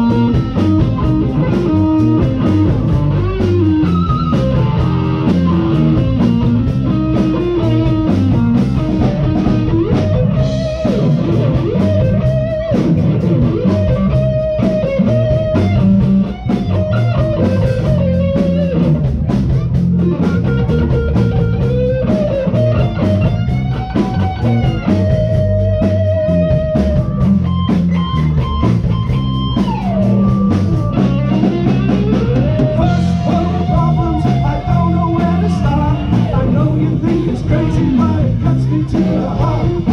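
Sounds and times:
bending lead guitar notes: 0.0s - 39.9s
live blues band playing: 0.0s - 39.9s.

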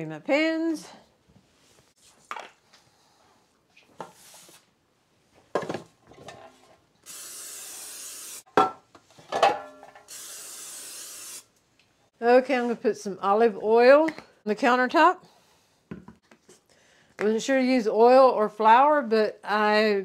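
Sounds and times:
aerosol cooking spray hissing: 7.1s - 8.5s, 10.1s - 11.5s
metal pans clanking: 8.6s - 10.1s.

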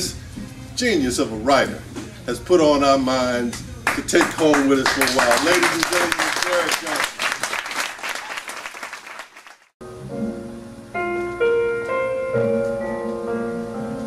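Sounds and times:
applause: 3.8s - 9.8s
instrumental music with held notes: 9.8s - 14.0s.

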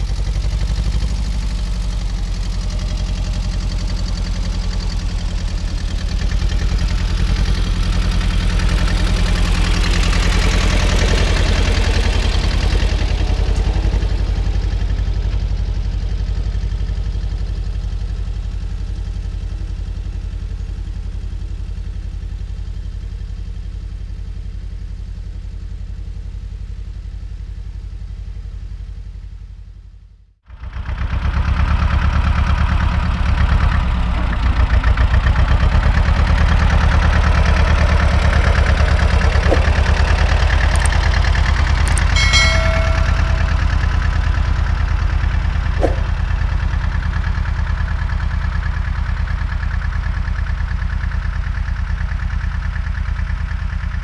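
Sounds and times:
tractor engine running: 0.0s - 18.1s, 30.6s - 54.0s.

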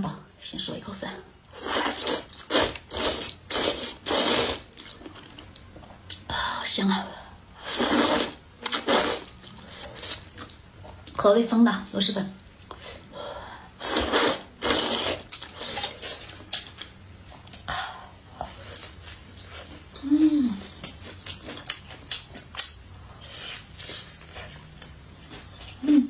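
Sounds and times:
loud slurp of noodles: 1.6s - 4.7s, 7.6s - 9.3s, 13.8s - 16.0s.

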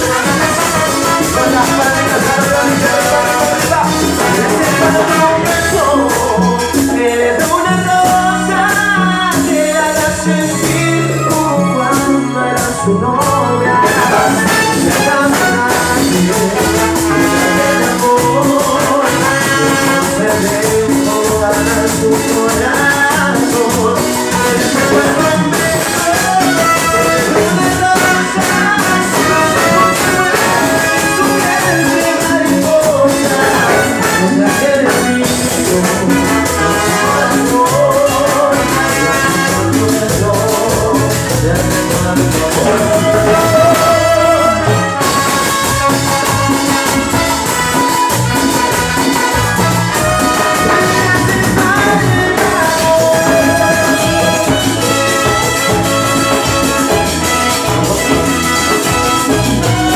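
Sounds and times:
electric guitars: 0.0s - 59.9s
lead singer singing: 0.0s - 59.9s
live band playing: 0.0s - 59.9s
trumpet and trombone: 0.0s - 59.9s.

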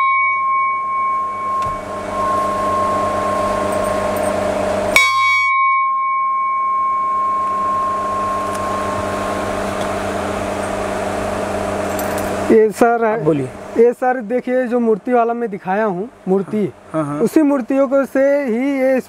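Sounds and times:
large brass bell ringing: 0.0s - 12.5s.

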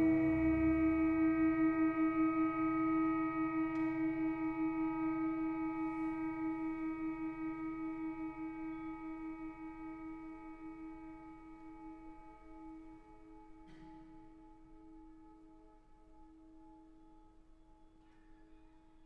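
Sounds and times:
orchestra sustained chord: 0.0s - 2.1s.

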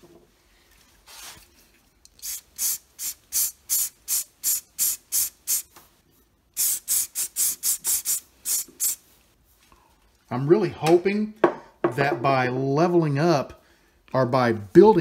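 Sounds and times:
spray bottle hissing squirts: 2.2s - 5.7s, 6.6s - 9.0s.

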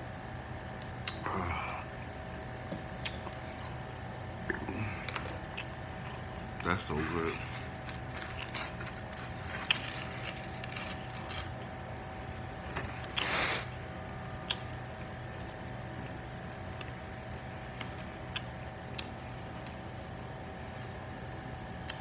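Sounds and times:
steady low hum: 0.0s - 22.0s
person chewing: 2.9s - 11.7s, 14.4s - 15.4s.

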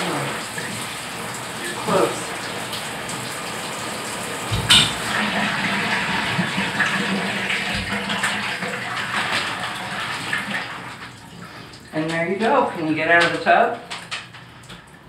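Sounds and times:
water running into bathtub: 0.0s - 15.0s
loud thump: 4.5s - 5.0s.

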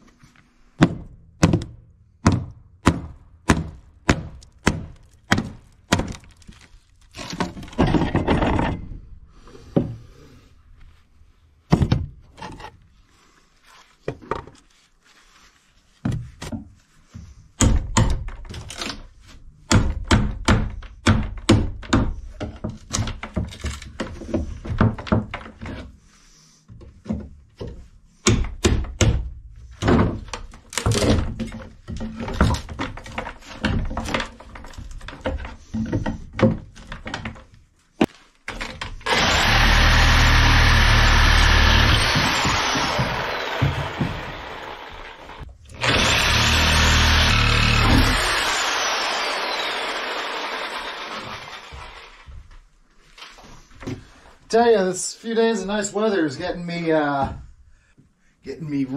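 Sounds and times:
wood knocks thuds and cracks: 0.8s - 8.9s, 11.7s - 12.7s, 17.6s - 25.9s, 27.0s - 49.4s.

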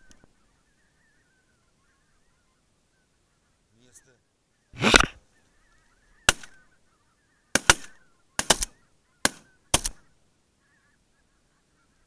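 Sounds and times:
shotgun fire: 6.3s - 6.5s, 7.6s - 10.0s.

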